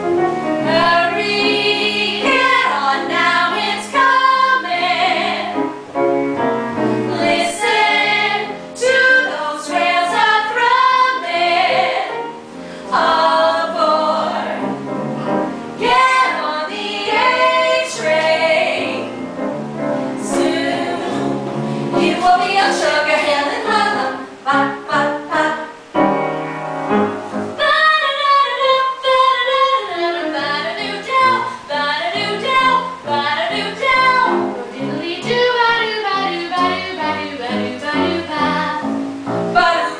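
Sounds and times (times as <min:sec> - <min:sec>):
women singing together: 0:00.6 - 0:05.7, 0:07.0 - 0:14.8, 0:15.8 - 0:19.2, 0:20.1 - 0:25.8, 0:27.6 - 0:38.8, 0:39.6 - 0:39.9.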